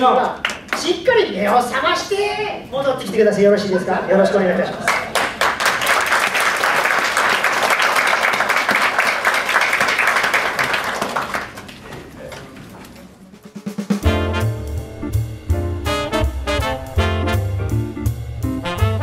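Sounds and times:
audience applauding: 0:04.9 - 0:12.8.

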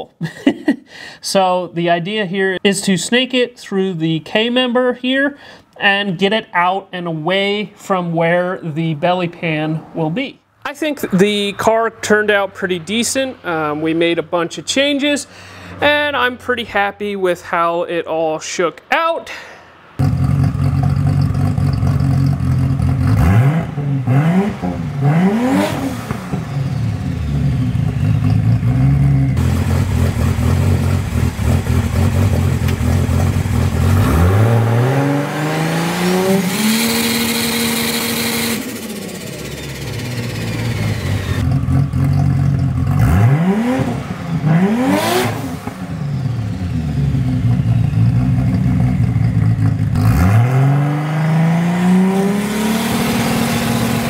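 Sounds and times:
turbocharged engine idling and revving: 0:20.0 - 0:54.0.

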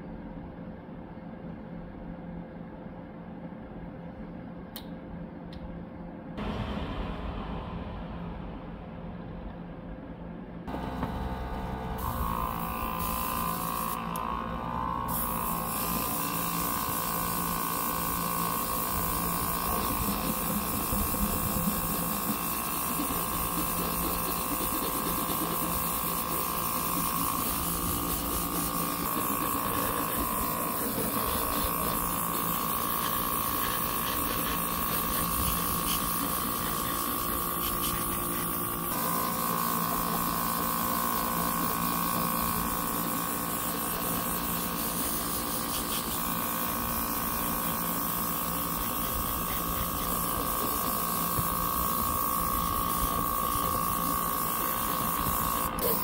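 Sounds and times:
small compressor motor humming: 0:10.7 - 0:56.0
airbrush air hiss: 0:15.1 - 0:56.0.

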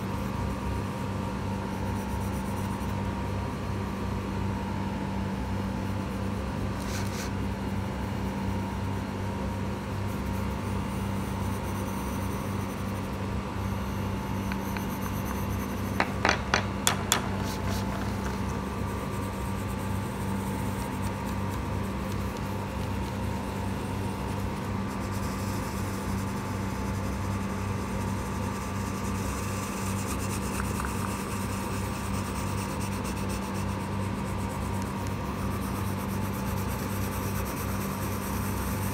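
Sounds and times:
steady hum: 0:00.0 - 0:38.9
pencil rubbing on paper: 0:06.8 - 0:07.4, 0:14.4 - 0:16.0, 0:17.3 - 0:23.5, 0:24.2 - 0:38.9.

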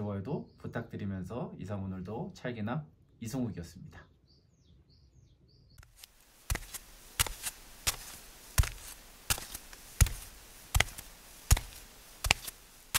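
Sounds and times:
faint bird chirps: 0:00.0 - 0:01.6, 0:03.1 - 0:06.0
light hiss: 0:05.8 - 0:12.9.

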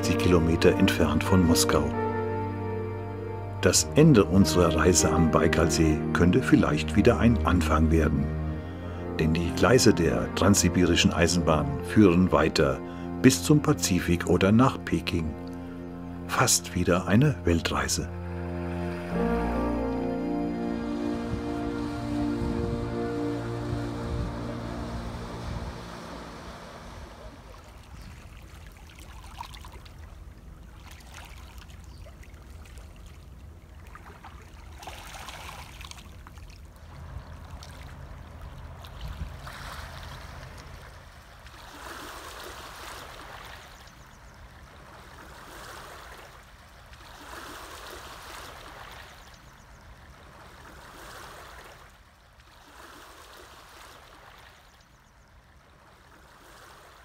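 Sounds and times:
motorboat engine humming: 0:00.0 - 0:28.8, 0:36.2 - 0:42.4.

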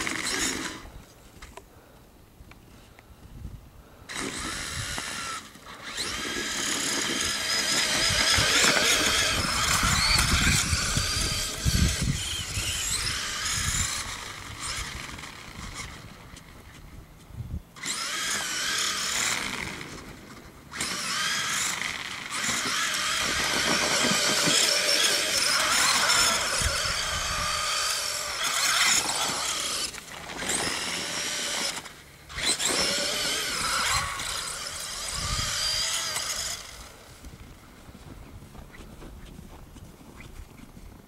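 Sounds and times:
rc truck electric motor whining: 0:00.0 - 0:01.0, 0:04.1 - 0:16.8, 0:17.8 - 0:37.6.

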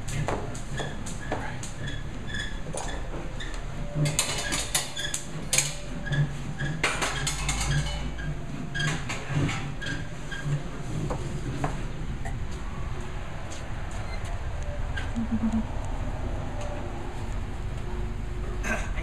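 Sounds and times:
metal clanks and knocks: 0:04.0 - 0:10.1.

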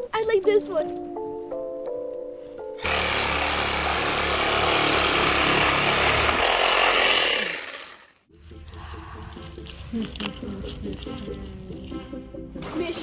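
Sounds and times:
reciprocating saw cutting wood: 0:02.8 - 0:08.2.

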